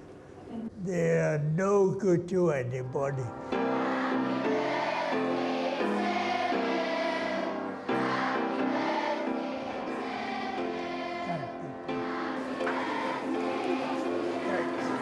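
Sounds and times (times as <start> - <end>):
children singing together: 3.6 - 15.0.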